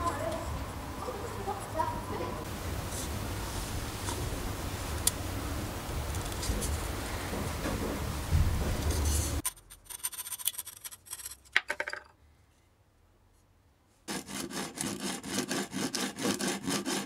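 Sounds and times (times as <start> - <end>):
wooden dowel scraping: 8.8 - 11.6, 14.1 - 17.0
coping saw sawing: 14.1 - 17.0
wood rubbing on sandpaper: 14.1 - 17.0.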